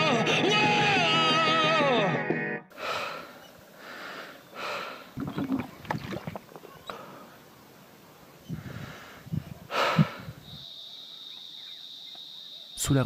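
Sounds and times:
man breathing heavily: 2.7s - 5.2s, 8.5s - 10.5s
cicada drone: 6.8s - 13.0s
wind buffeting microphone: 8.4s - 10.6s.

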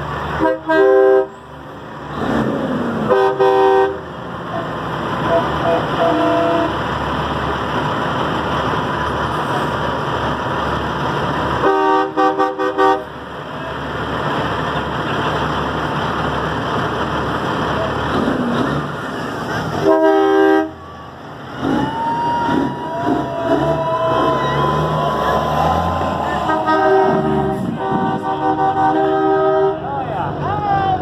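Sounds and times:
trucks rolling past: 0.0s - 31.0s
truck air horn blasts: 0.4s - 1.4s, 3.0s - 6.8s, 11.6s - 13.1s, 19.8s - 21.0s, 26.2s - 29.9s.

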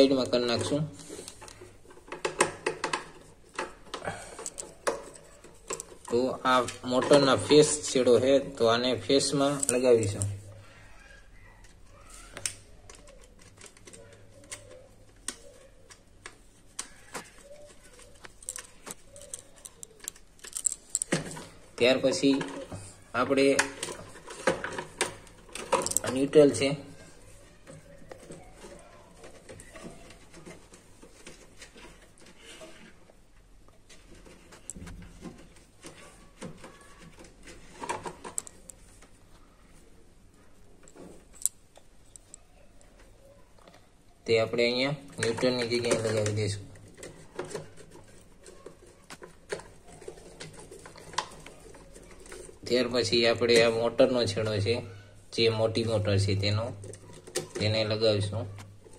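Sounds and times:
wires and screwdriver clicking: 9.3s - 10.3s, 11.6s - 22.6s, 23.4s - 26.7s.

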